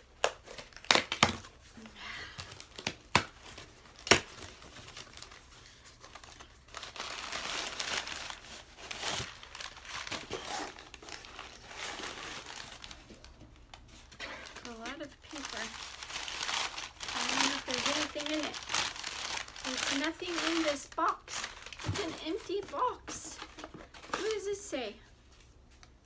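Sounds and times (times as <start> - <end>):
packaging ripping: 0.2 - 1.5, 6.0 - 13.3, 14.4 - 22.0
packing crinkling and rustling: 2.3 - 24.5.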